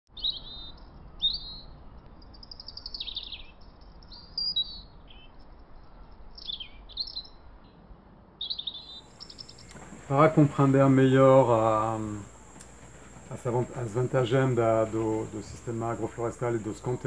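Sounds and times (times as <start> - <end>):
bird chirping and trilling: 0.1 - 7.8, 8.4 - 10.7.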